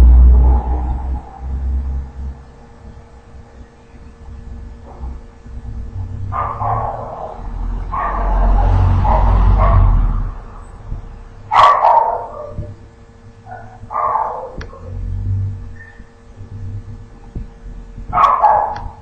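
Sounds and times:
low rumble: 0:00.0 - 0:19.0
dog barking: 0:06.3 - 0:10.6, 0:11.5 - 0:12.8, 0:13.4 - 0:15.0, 0:18.1 - 0:19.0.

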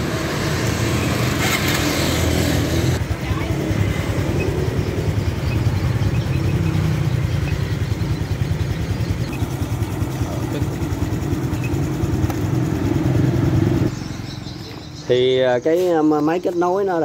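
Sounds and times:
motorcycle engine idling: 0:03.0 - 0:15.6.

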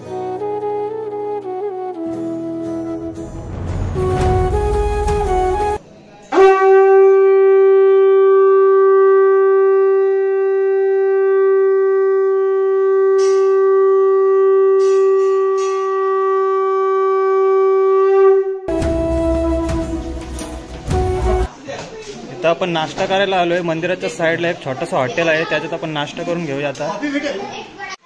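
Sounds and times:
conch shell blown: 0:00.0 - 0:21.5.

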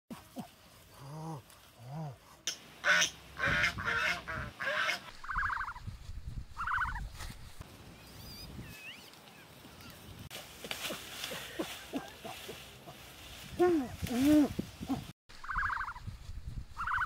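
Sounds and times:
geese honking: 0:02.8 - 0:05.8, 0:06.6 - 0:07.0, 0:15.4 - 0:16.0, 0:16.8 - 0:17.0.

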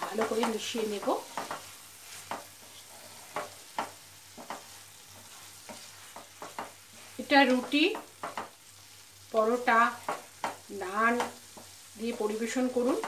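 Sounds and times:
faint sizzle: 0:00.0 - 0:13.0
spatula scraping a pan: 0:00.1 - 0:09.0.

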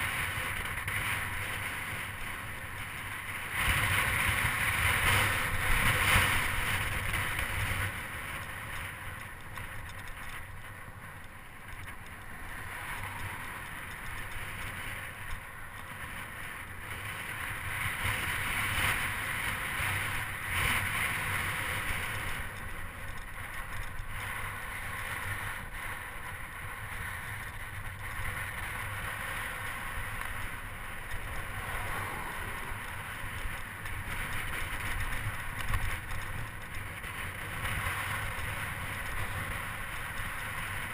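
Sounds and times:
bicycle tyres rolling on asphalt: 0:00.0 - 0:40.9
wind over microphone: 0:11.5 - 0:40.9.

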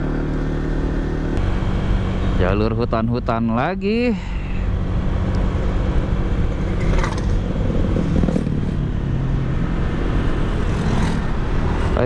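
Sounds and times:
motorcycle engine running: 0:00.0 - 0:12.0
wind noise on microphone: 0:04.9 - 0:09.5.

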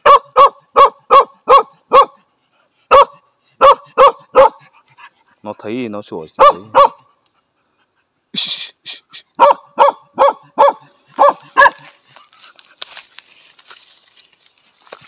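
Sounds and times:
dog barking: 0:00.0 - 0:02.2, 0:02.9 - 0:04.8, 0:06.4 - 0:07.1, 0:09.4 - 0:11.9.

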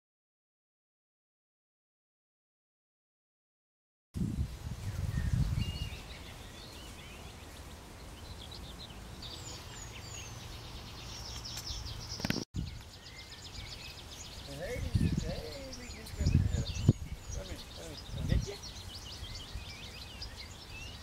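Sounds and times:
birds chirping and singing: 0:04.2 - 0:21.0.

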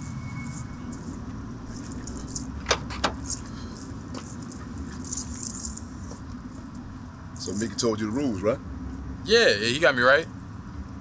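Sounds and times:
keys jangling: 0:01.8 - 0:06.2
latch clicks: 0:02.6 - 0:03.2.

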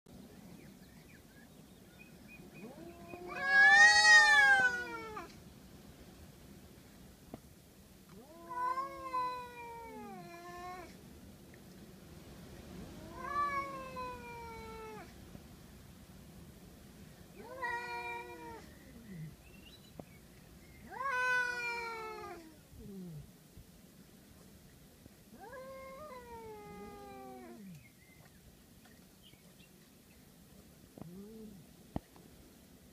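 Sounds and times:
cats yowling: 0:02.6 - 0:05.3, 0:08.2 - 0:11.0, 0:13.0 - 0:15.1, 0:17.4 - 0:19.3, 0:20.8 - 0:22.6, 0:25.4 - 0:27.7.

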